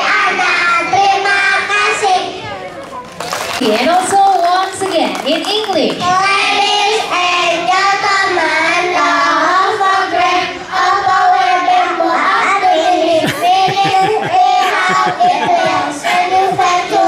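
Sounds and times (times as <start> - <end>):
children singing in unison: 6.1 - 17.0.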